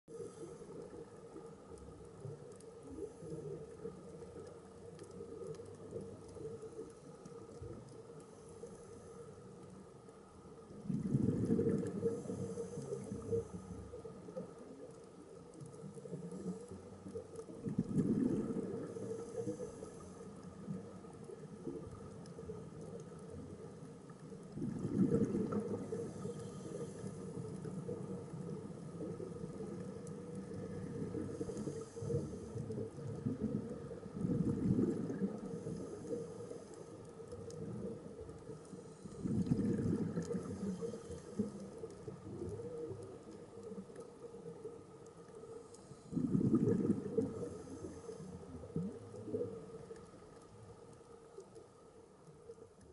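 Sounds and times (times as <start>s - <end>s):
exhaled bubbles rumbling: 10.6s - 19.8s, 20.5s - 36.3s, 37.0s - 45.0s, 45.9s - 50.5s.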